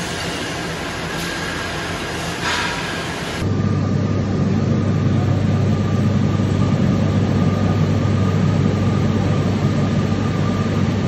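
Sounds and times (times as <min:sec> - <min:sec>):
machinery humming: 0:00.0 - 0:11.0.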